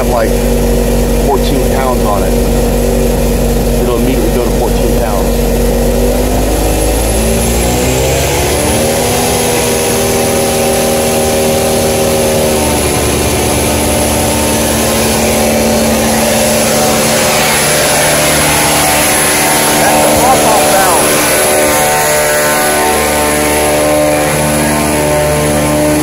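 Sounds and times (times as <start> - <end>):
diesel truck engine revving: 0.0 - 26.0
steady high whine: 0.0 - 26.0.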